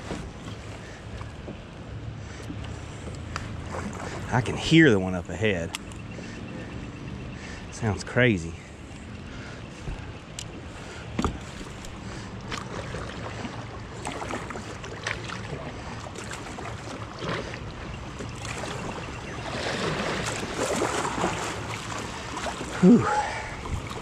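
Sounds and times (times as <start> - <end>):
knocks and splashes on hull: 11.1 - 24.0.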